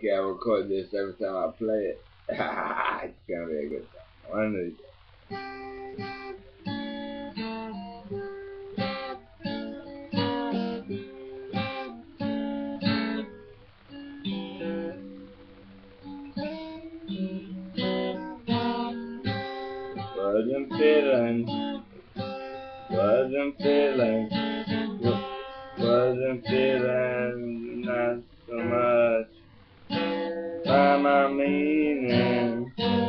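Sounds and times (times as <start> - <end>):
acoustic guitar strumming chords: 3.6 - 33.0.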